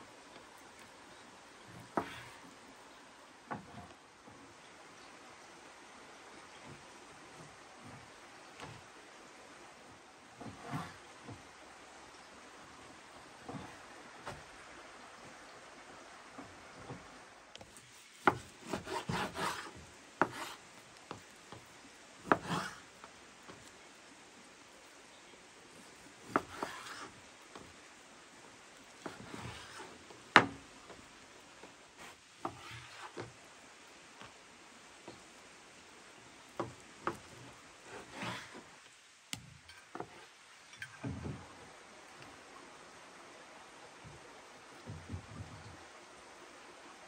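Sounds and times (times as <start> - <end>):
knife scraping: 26.4 - 27.1.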